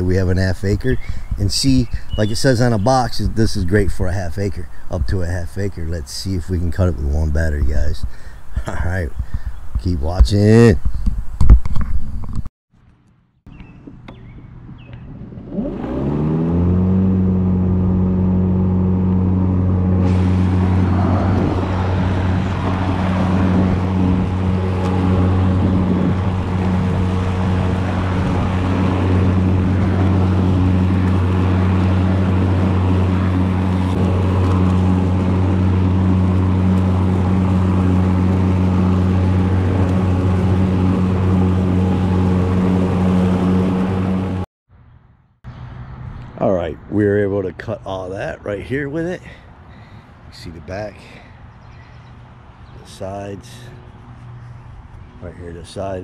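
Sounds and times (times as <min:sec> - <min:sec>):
electric lawn mower whine: 0:13.5 - 0:44.5
loud rushing noise: 0:19.7 - 0:44.4.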